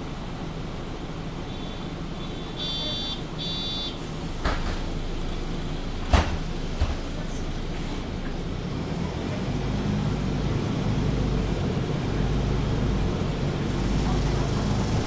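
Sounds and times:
bus idling low hum: 0:00.0 - 0:15.0
electronic door warning beep: 0:02.6 - 0:04.0
bus doors closing knocks: 0:02.6 - 0:07.4.

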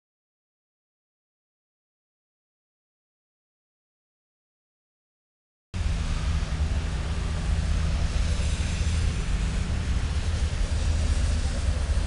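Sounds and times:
freight train rumble: 0:05.8 - 0:12.0
train hiss: 0:05.8 - 0:12.0.

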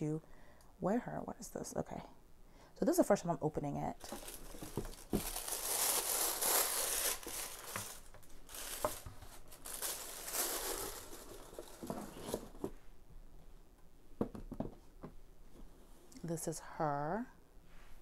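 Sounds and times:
tissue paper rustling and crinkling: 0:04.0 - 0:12.7.

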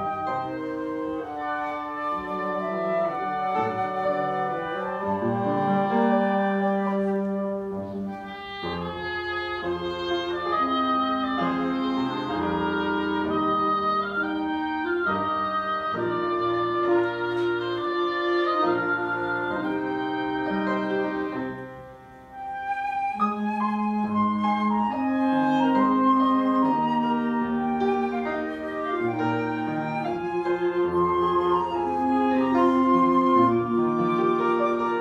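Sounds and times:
flute and woodwinds: 0:00.0 - 0:35.0
upright piano: 0:00.0 - 0:35.0.

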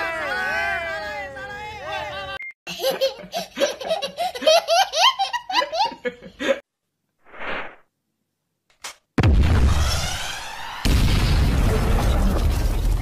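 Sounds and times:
toddler giggling: 0:02.7 - 0:06.0.

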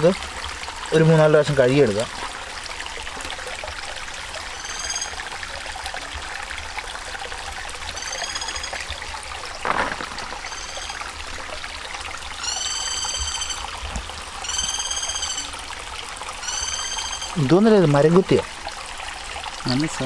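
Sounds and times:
flowing stream water: 0:00.0 - 0:20.0
bird calling in high notes: 0:04.4 - 0:05.3, 0:07.9 - 0:11.2, 0:12.4 - 0:13.8, 0:14.4 - 0:15.7, 0:16.4 - 0:17.7.

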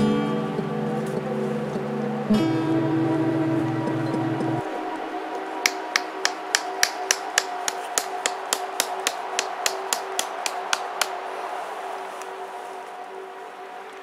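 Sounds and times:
faint background music: 0:00.0 - 0:14.0
hatchet tapping tent stake: 0:05.6 - 0:11.1.

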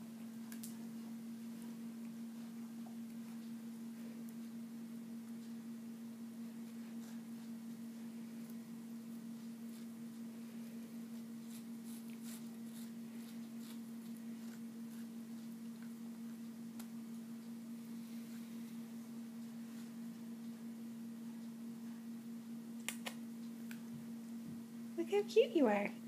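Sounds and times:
steady electrical hum: 0:00.0 - 0:26.0
cat crunching vegetables: 0:11.1 - 0:17.0.

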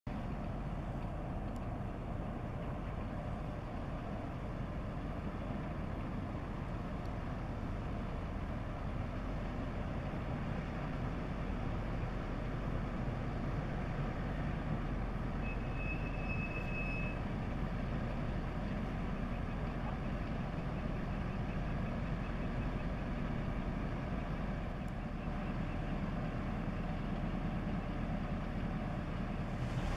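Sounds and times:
ship diesel engine rumbling: 0:00.1 - 0:29.9.

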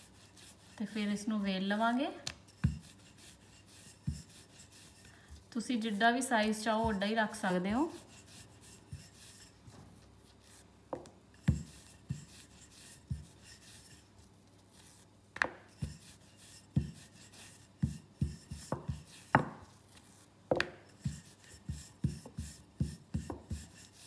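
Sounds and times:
rolling pin rubbing dough: 0:00.0 - 0:24.0
rolling pin knocking on stone: 0:15.4 - 0:16.0, 0:17.8 - 0:19.6, 0:20.5 - 0:23.7.

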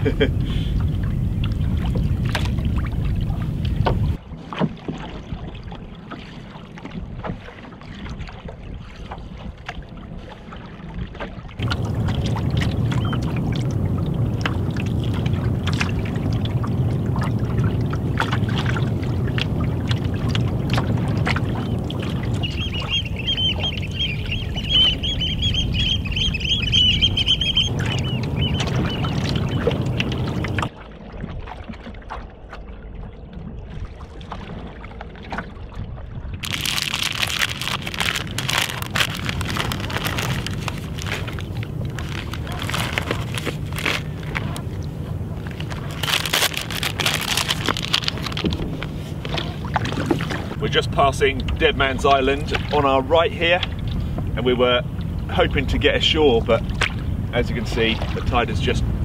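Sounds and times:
water slapping against hull: 0:00.0 - 0:59.0
wind rumbling on microphone: 0:00.0 - 0:59.0
paddle strokes: 0:00.4 - 0:32.7, 0:36.4 - 0:50.7
birds calling: 0:12.7 - 0:13.5, 0:21.4 - 0:30.7.

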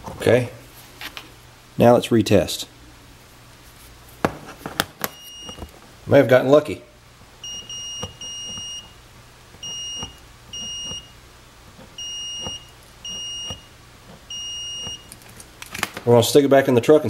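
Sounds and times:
multimeter beeping: 0:05.0 - 0:05.7, 0:07.4 - 0:09.0, 0:09.6 - 0:11.2, 0:11.8 - 0:15.2.

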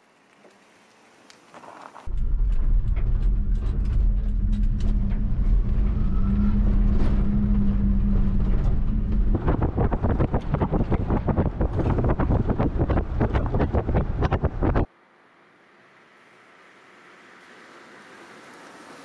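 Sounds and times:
road rumble: 0:00.5 - 0:15.0, 0:15.6 - 0:19.0
wind buffeting microphone: 0:02.1 - 0:14.9.

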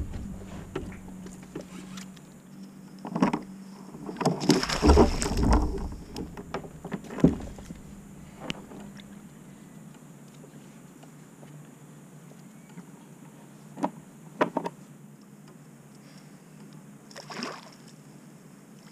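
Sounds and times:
sharp knocks: 0:00.0 - 0:01.8, 0:04.6 - 0:09.0
fish splashing at surface: 0:04.4 - 0:08.2.

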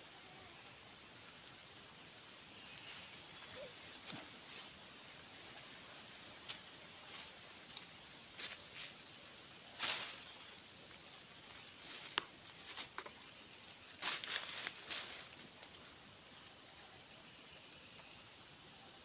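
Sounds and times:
leaves and brush rustling: 0:00.4 - 0:18.2
twigs snapping: 0:11.9 - 0:13.2.

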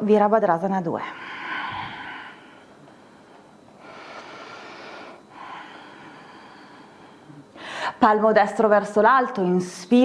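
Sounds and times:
woman breathing slowly: 0:01.0 - 0:08.0.

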